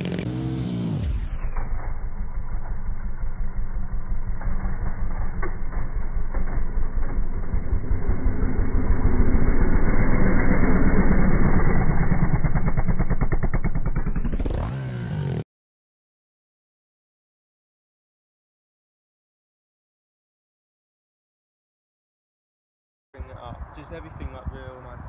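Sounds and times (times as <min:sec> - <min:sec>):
pit bike engines revving: 0:00.0 - 0:01.0, 0:02.0 - 0:15.4.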